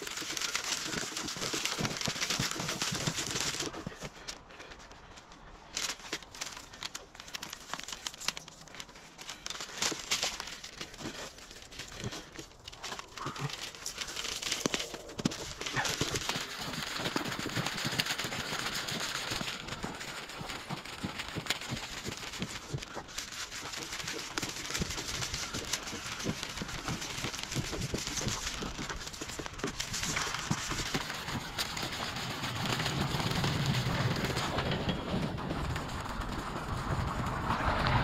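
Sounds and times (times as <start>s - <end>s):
person breathing: 9.1s - 16.6s.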